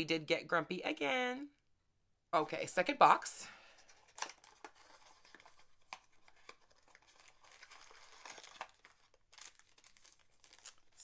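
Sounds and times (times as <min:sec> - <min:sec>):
packaging crinkling and tearing: 0:04.0 - 0:11.0.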